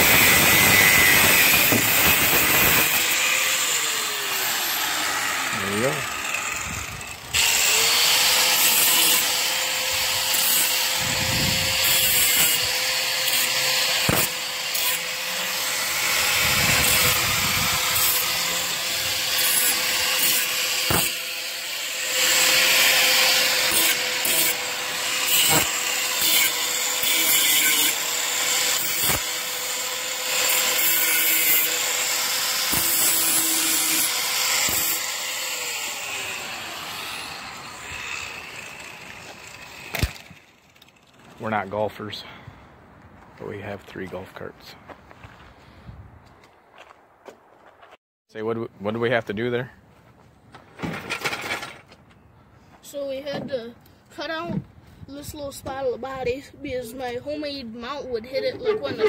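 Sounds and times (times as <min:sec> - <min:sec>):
angle grinder cutting metal: 0:00.0 - 0:41.8.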